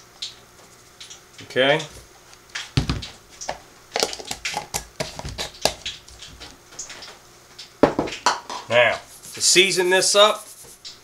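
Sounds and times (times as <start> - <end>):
cornmeal pouring: 9.1 - 10.9.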